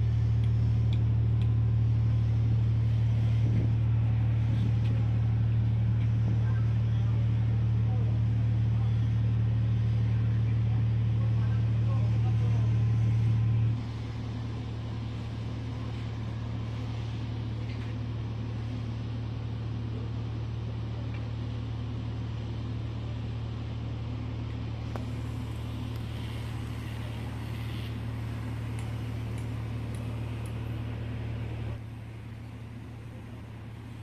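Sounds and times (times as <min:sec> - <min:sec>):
diesel machinery droning: 0:00.0 - 0:34.0.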